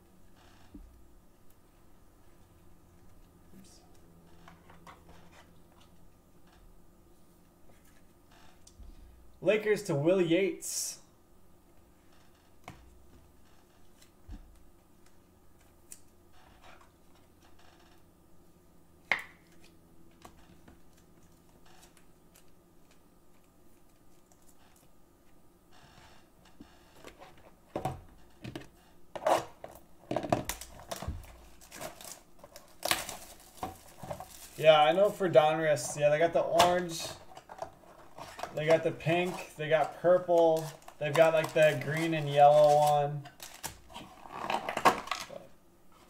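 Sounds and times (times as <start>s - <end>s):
plastic wrap crinkling and tearing: 29.2s - 45.4s.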